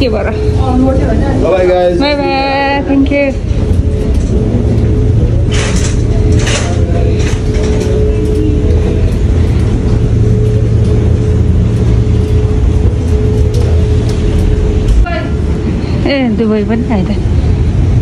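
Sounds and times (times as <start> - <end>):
constant hum: 0.0 - 18.0
wheelchair rolling rumble: 0.6 - 18.0
wheelchair frame rattling: 3.0 - 15.7.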